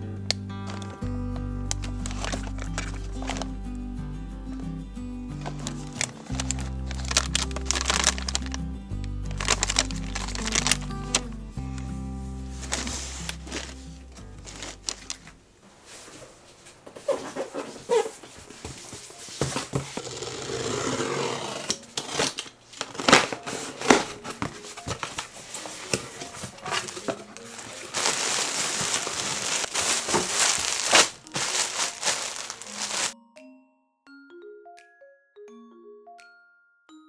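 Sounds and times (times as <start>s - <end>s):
plastic bag crinkling: 0.6s - 1.1s, 1.7s - 3.6s, 5.4s - 11.9s, 12.5s - 15.4s, 22.2s - 33.2s
cardboard box being handled: 0.7s - 1.0s, 1.8s - 3.5s, 5.4s - 8.6s, 9.4s - 11.3s, 12.5s - 15.3s, 23.0s - 33.2s.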